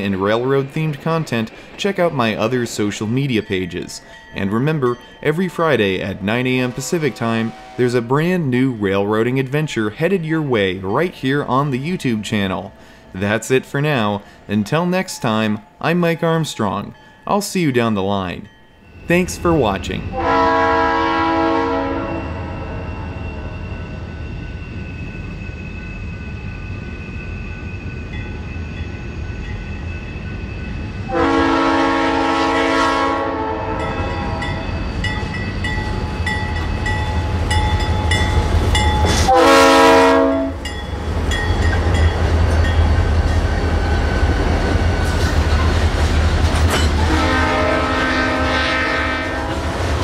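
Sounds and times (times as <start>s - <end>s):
diesel locomotive engine rumble: 0.0s - 16.3s, 18.5s - 50.0s
locomotive air horn blasts: 6.6s - 8.1s, 20.1s - 22.4s, 31.1s - 34.4s, 39.1s - 40.6s, 47.0s - 49.7s.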